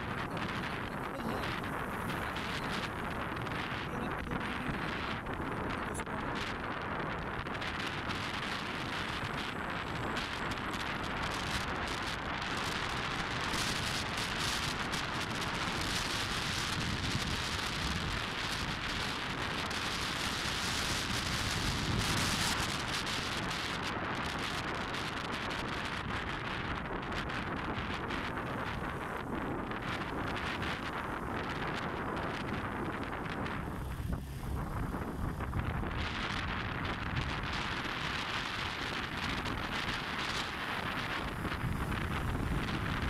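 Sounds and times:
wind rushing on microphone: 0:00.0 - 0:43.0.

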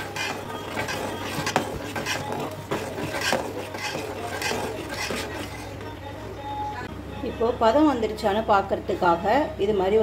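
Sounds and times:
fork scraping a metal pot: 0:00.0 - 0:05.8.

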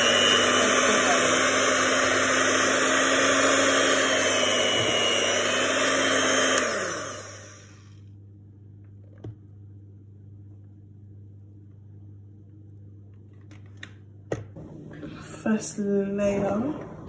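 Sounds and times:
electric hand mixer whirring: 0:00.0 - 0:08.0.

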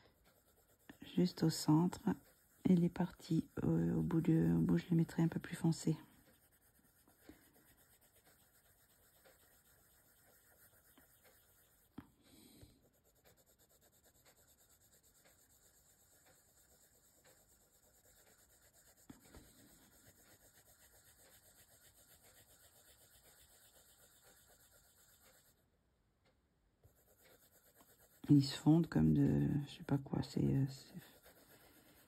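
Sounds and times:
colored pencil scratching paper: 0:00.0 - 0:25.6, 0:26.8 - 0:32.0.

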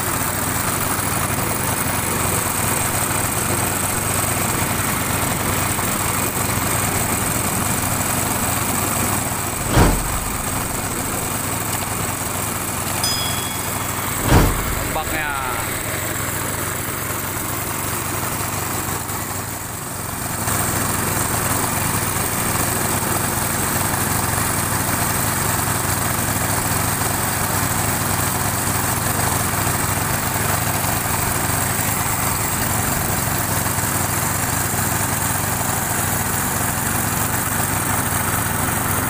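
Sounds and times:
boat engine running: 0:01.2 - 0:16.0.

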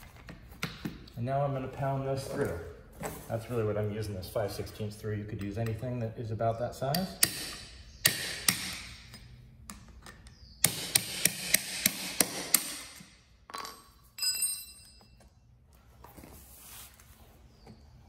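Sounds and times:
hammer striking metal punch: 0:06.9 - 0:08.9.

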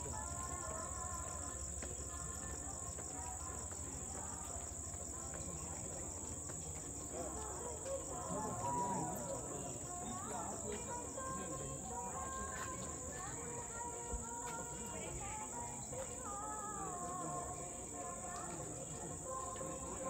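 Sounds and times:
crickets trilling: 0:00.0 - 0:20.0
faint music: 0:00.0 - 0:20.0
faint voices: 0:00.0 - 0:20.0.

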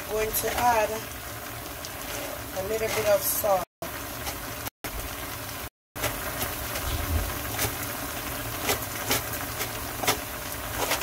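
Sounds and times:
vegetables sizzling in a pan: 0:00.0 - 0:11.0.

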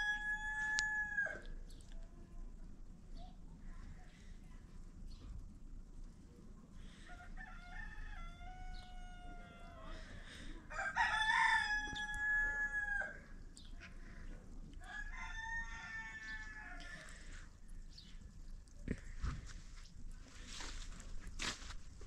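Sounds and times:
roosters crowing: 0:00.0 - 0:01.6, 0:07.0 - 0:13.4, 0:14.8 - 0:17.5.

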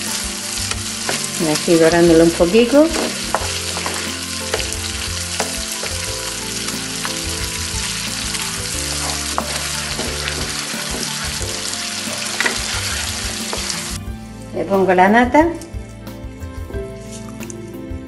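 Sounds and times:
food sizzling in a frying pan: 0:00.0 - 0:14.0
wooden spoon scraping a pan: 0:01.0 - 0:14.0.

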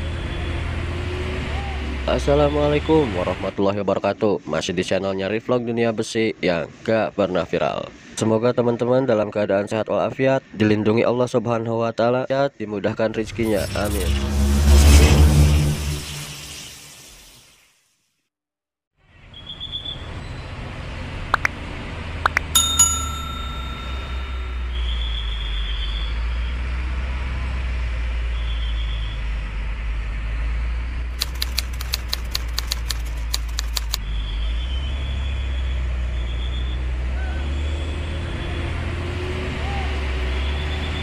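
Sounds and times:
short ringing ping: 0:22.4 - 0:24.9
metallic clinks: 0:22.5 - 0:24.8
quick run of clicks: 0:31.2 - 0:34.0.

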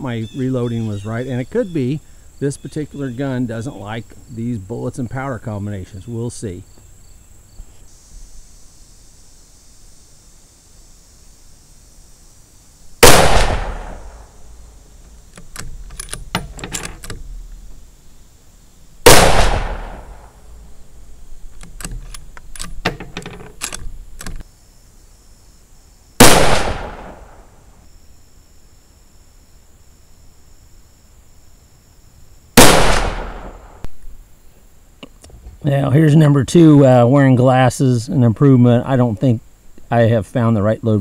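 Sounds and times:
rifle shots: 0:13.0 - 0:14.3, 0:19.0 - 0:20.3, 0:26.2 - 0:27.4, 0:32.6 - 0:33.8.

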